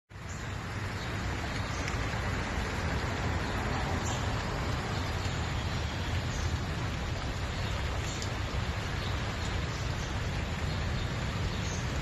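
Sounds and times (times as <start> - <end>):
creek rushing: 0.1 - 12.0.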